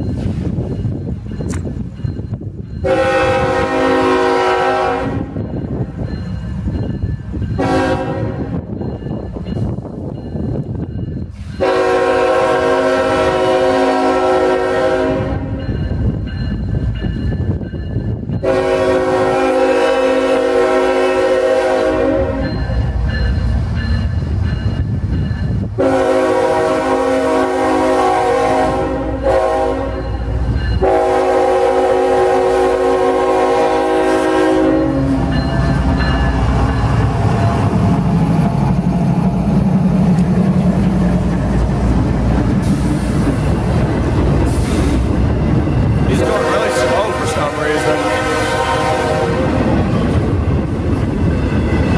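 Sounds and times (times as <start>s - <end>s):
train rumbling and clattering past: 0.0s - 51.9s
locomotive air horn blasts: 2.8s - 5.4s, 7.6s - 8.6s, 11.6s - 15.6s, 18.4s - 22.6s, 25.8s - 30.1s, 30.8s - 35.4s, 46.1s - 49.7s.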